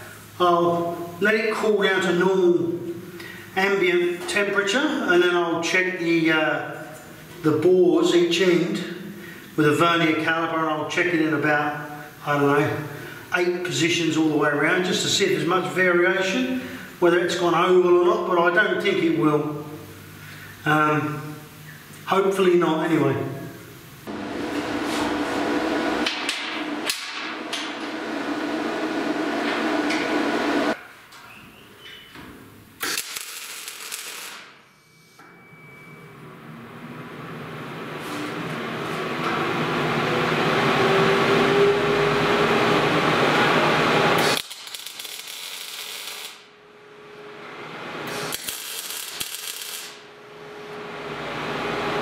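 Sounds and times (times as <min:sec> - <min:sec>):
machine hum: 0:23.6 - 0:31.6, 0:32.5 - 0:52.0
welding arc crackling: 0:32.8 - 0:34.6, 0:43.8 - 0:46.5, 0:48.1 - 0:50.1.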